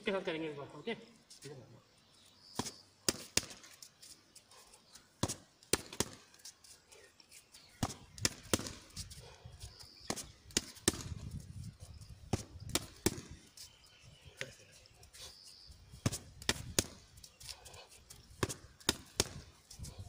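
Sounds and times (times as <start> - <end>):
punches slapping focus mitts: 2.6 - 3.8, 5.2 - 6.3, 7.8 - 9.0, 10.1 - 11.2, 12.3 - 13.4, 16.0 - 17.0, 18.4 - 19.5.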